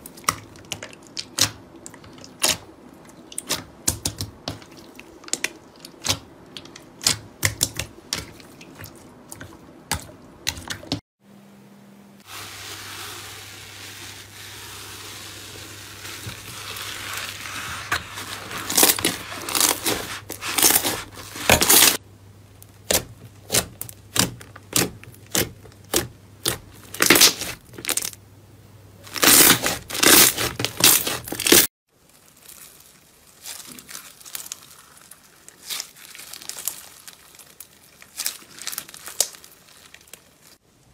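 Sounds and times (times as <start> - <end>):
bead slime crackling: 29.1 - 40.6.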